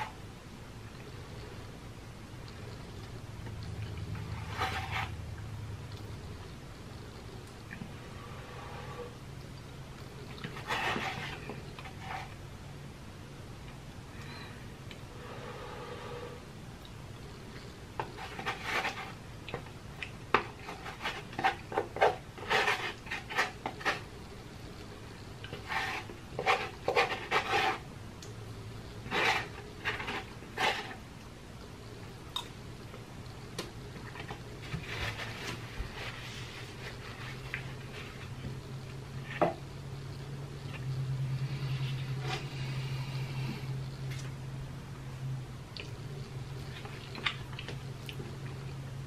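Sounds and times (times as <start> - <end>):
man chewing and lip-smacking: 45.7 - 46.0.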